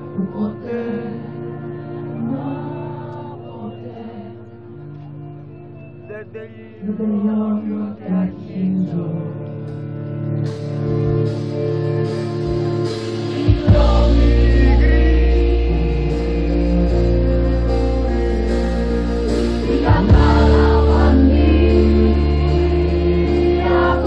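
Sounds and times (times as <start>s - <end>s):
person singing: 0.0s - 4.6s, 12.1s - 24.0s
live band playing: 10.0s - 24.0s
heavy bass hit: 19.9s - 21.0s.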